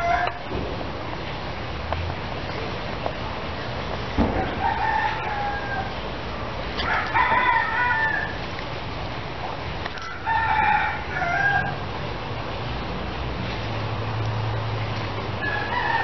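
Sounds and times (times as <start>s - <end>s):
roosters crowing: 0.0s - 0.5s, 4.2s - 8.6s, 9.9s - 12.0s, 15.3s - 16.0s.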